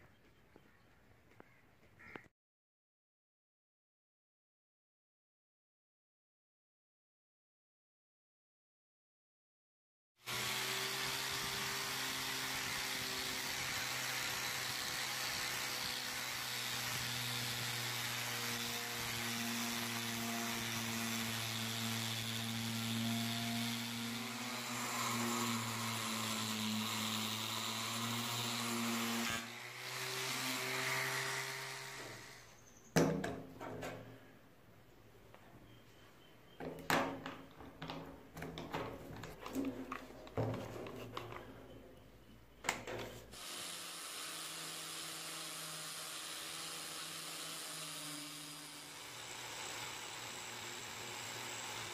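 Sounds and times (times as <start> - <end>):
angle grinder sanding steel: 10.3 - 32.1, 43.3 - 51.9.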